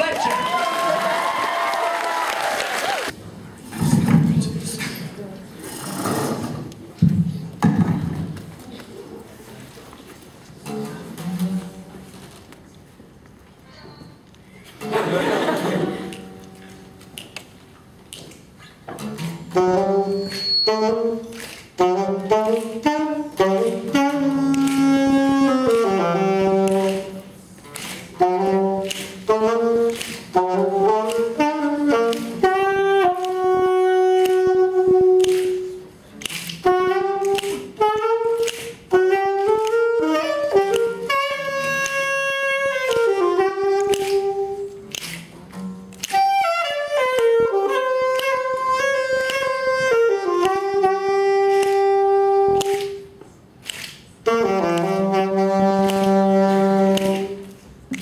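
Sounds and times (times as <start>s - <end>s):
saxophone melody: 19.0s - 45.0s, 45.9s - 53.2s, 54.2s - 58.0s.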